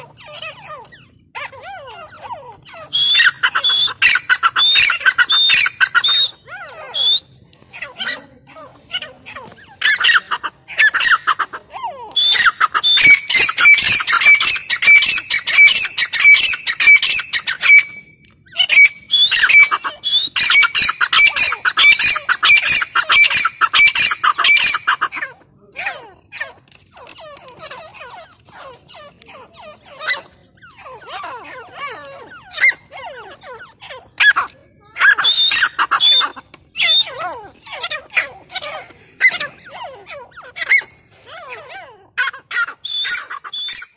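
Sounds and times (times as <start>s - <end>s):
francolins calling shrill notes: 2.0s - 7.4s, 12.1s - 25.1s, 35.0s - 37.8s, 42.6s - 43.9s.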